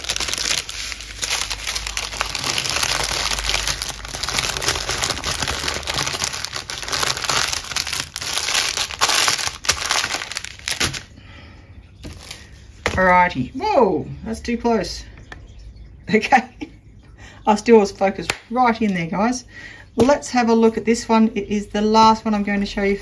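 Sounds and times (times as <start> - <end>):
plastic packaging crinkling: 0.0 - 11.2, 12.0 - 12.6.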